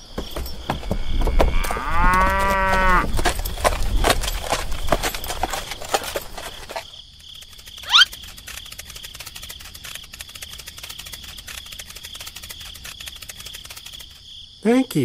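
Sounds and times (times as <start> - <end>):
crickets chirring: 0.0 - 15.0
rapid pattering clicks: 2.2 - 14.2.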